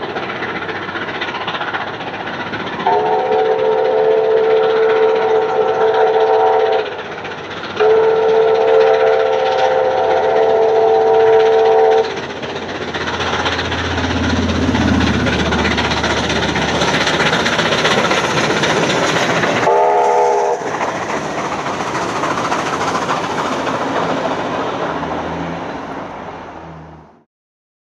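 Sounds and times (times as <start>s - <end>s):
steam train rumbling past: 0.0s - 27.2s
steam whistle blast: 2.8s - 6.8s, 7.8s - 12.1s, 19.7s - 20.7s.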